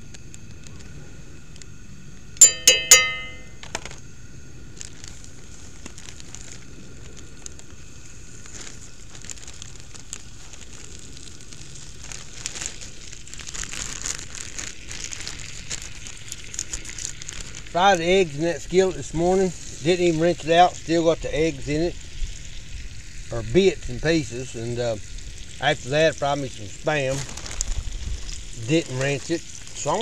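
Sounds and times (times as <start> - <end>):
metallic clinks: 2.4 - 3.5
chicken sizzling in hot oil: 4.8 - 30.0.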